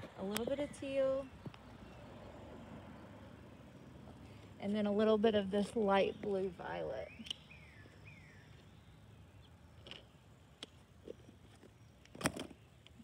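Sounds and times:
bird chirps: 5.4 - 10.2.

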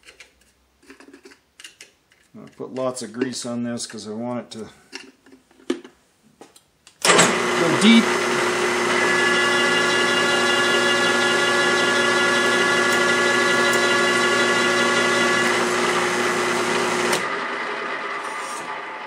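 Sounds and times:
drill press running: 7.0 - 19.0.

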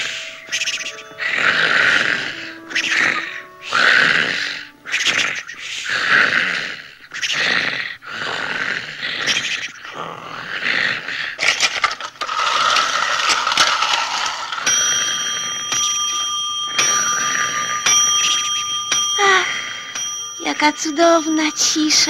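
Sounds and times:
falling pitch slides: 0.0 - 5.6
steady bell-like ringing: 0.0 - 5.6, 11.8 - 22.0
wall clock striking: 13.2 - 22.0.

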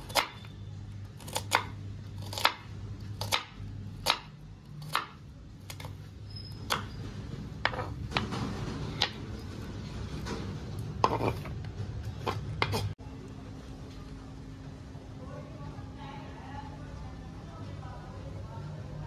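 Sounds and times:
onions scraped onto plate: 10.8 - 13.0.

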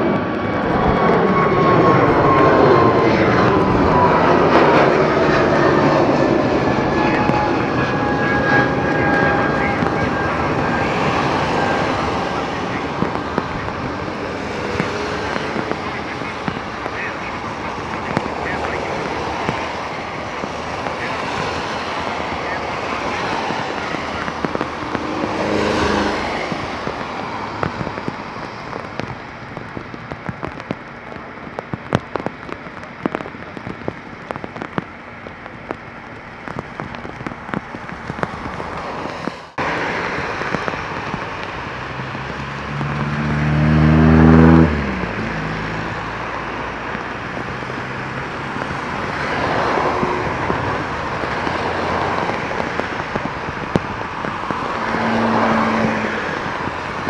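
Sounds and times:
engine tone rising in pitch: 0.0 - 13.0, 41.8 - 46.3
heavy rain hissing: 0.0 - 57.0
raindrops ticking on microphone: 0.0 - 57.0.

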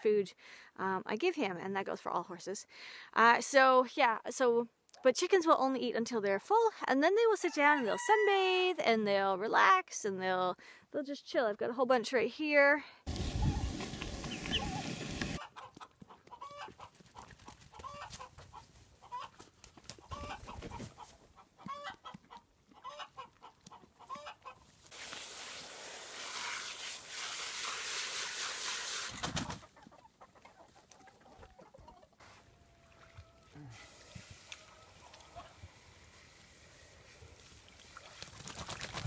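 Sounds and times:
chickens clucking: 13.1 - 24.7, 29.2 - 33.4, 34.6 - 35.7.

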